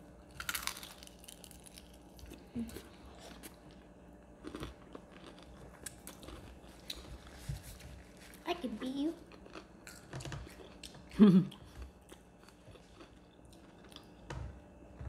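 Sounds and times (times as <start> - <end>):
chewing with small crunches: 0.2 - 15.0
crunchy bite into fried chicken: 0.4 - 2.3.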